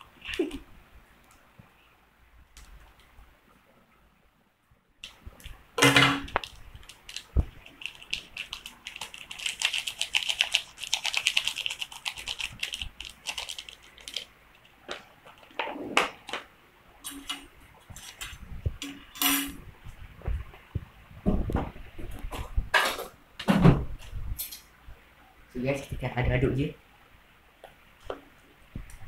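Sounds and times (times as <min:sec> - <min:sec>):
plastic sachets crinkling: 0:06.2 - 0:15.6.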